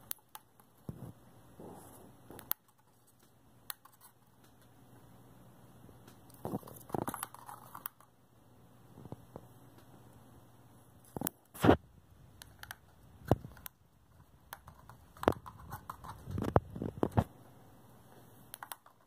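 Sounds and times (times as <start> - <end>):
bird pecking cardboard tubes: 6.1 - 8.1, 12.4 - 17.2, 18.5 - 19.0.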